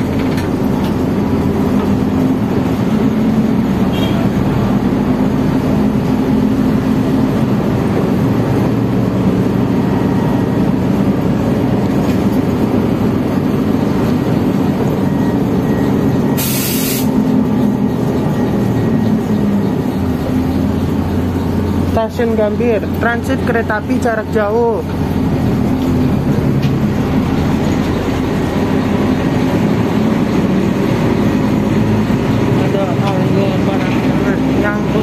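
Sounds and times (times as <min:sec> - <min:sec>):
bus engine drone: 0:00.0 - 0:35.0
road and rattle noise: 0:00.0 - 0:35.0
air release hiss: 0:16.4 - 0:17.1.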